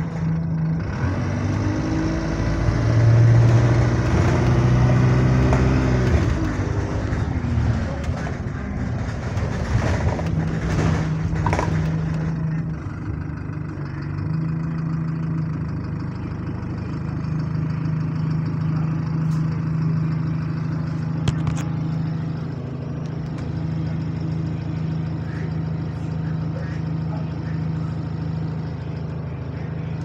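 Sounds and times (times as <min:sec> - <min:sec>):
bus engine droning: 0:00.0 - 0:30.0.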